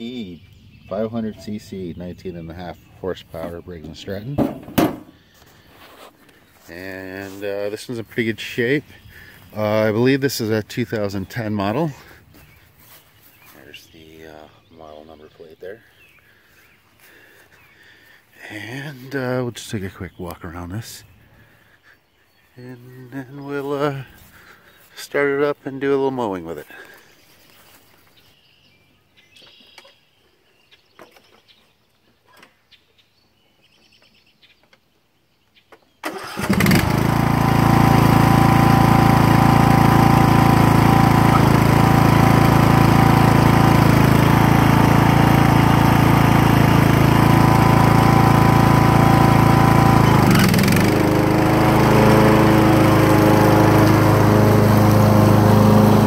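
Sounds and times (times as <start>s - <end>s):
lawn tractor engine running: 36.0s - 56.0s.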